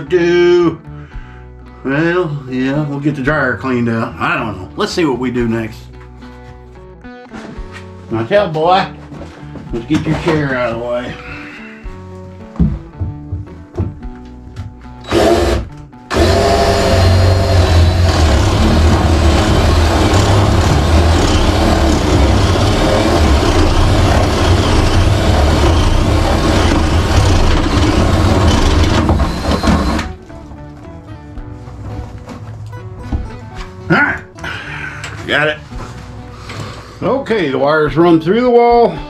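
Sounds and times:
cordless drill boring wood: 15.0 - 30.1.

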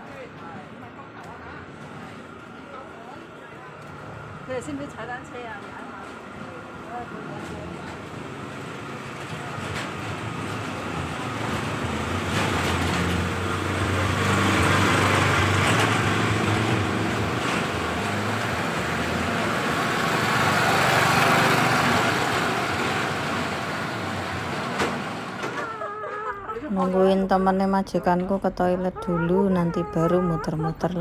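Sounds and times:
small truck engines driving past: 7.4 - 25.9.

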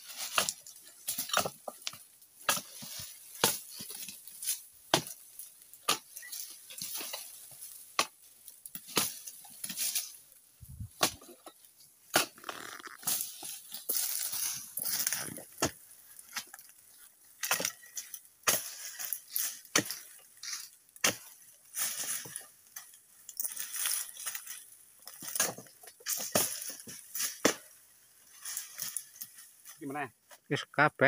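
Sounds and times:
palm fronds rustling: 0.0 - 30.5
pole blade chopping palm fronds: 0.1 - 10.2, 10.8 - 11.4, 12.1 - 16.6, 17.4 - 22.4, 23.5 - 27.8.

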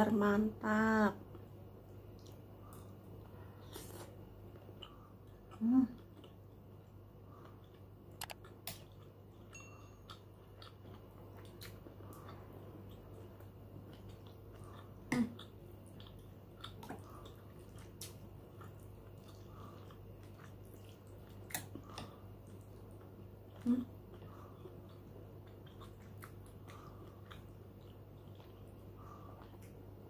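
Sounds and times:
low steady hum: 0.0 - 30.0
quiet chewing: 1.2 - 30.0
metal spoon clinking on bowl: 9.5 - 10.1.

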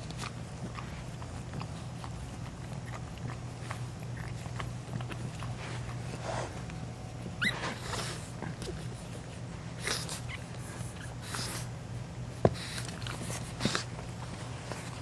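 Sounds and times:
puppy squeaking: 7.4 - 8.0.

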